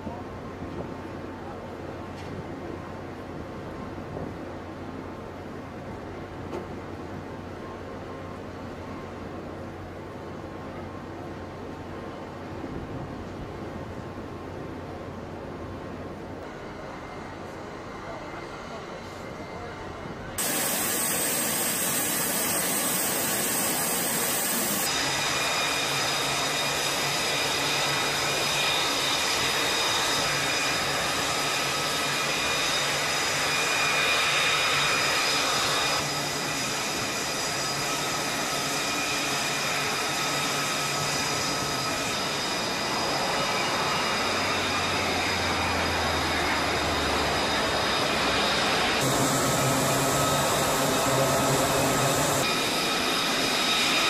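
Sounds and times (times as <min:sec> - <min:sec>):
high steady whines: 0:16.4 - 0:54.0
mechanical drone with rushing: 0:43.6 - 0:53.8.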